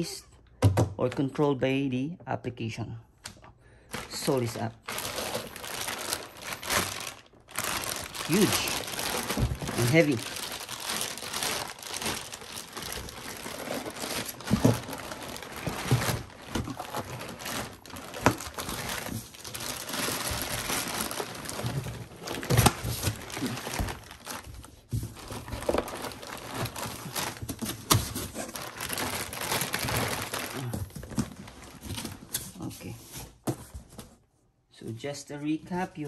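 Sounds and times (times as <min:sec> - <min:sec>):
plastic wrapping crinkling: 0:03.8 - 0:32.7.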